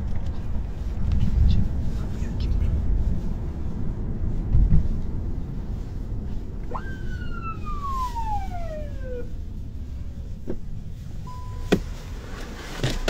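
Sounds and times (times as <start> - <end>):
car cabin rumble: 0.0 - 13.0
police siren wail: 6.6 - 9.4.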